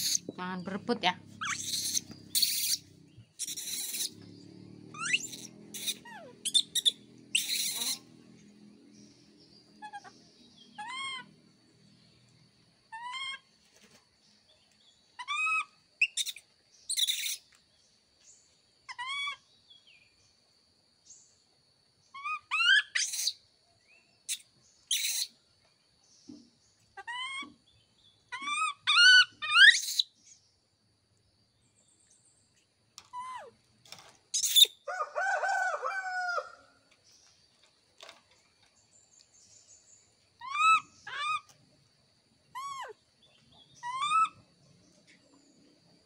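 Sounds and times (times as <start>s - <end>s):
harsh monkey cries: 0.0s - 0.3s, 1.4s - 4.2s, 4.9s - 8.1s, 9.8s - 10.2s, 10.8s - 11.3s, 12.9s - 13.4s, 15.2s - 17.4s, 18.9s - 19.4s, 22.2s - 23.4s, 24.9s - 25.3s, 27.0s - 27.6s, 28.3s - 30.0s, 40.4s - 41.5s, 42.5s - 43.0s, 43.8s - 44.4s
baby monkeys cooing: 0.0s - 8.2s, 9.8s - 11.3s, 13.0s - 13.4s, 15.2s - 17.4s, 18.9s - 19.4s, 22.2s - 23.4s, 24.9s - 25.3s, 27.0s - 27.6s, 28.3s - 30.1s, 33.1s - 33.6s, 40.4s - 41.5s, 42.5s - 43.0s, 43.8s - 44.5s.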